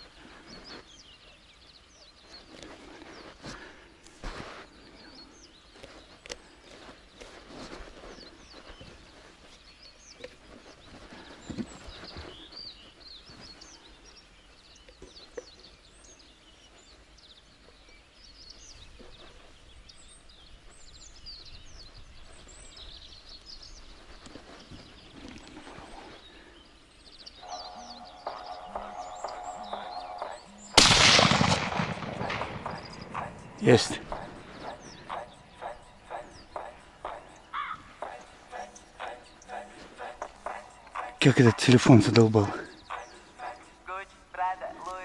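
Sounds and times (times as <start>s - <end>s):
small birds chirping: 0.0s - 45.0s
loud rifle shot: 30.8s - 33.2s.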